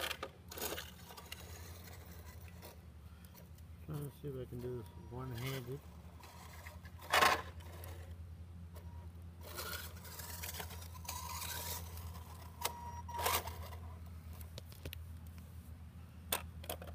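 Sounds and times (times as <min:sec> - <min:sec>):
model car motor whine: 0:00.0 - 0:02.8, 0:05.2 - 0:08.2, 0:08.8 - 0:13.9
scraping on concrete: 0:00.0 - 0:02.8, 0:05.3 - 0:08.2, 0:09.4 - 0:12.5.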